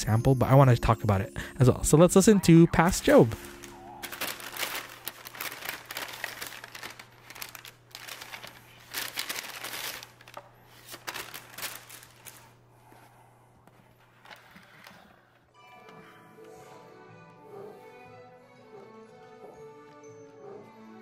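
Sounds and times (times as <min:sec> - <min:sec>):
paper rustling and crinkling: 0:02.8 - 0:15.4.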